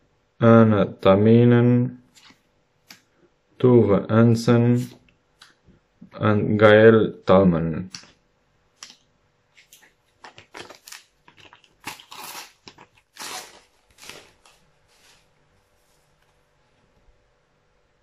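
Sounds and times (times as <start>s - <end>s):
packet tearing and crinkling: 9.6s - 15.2s.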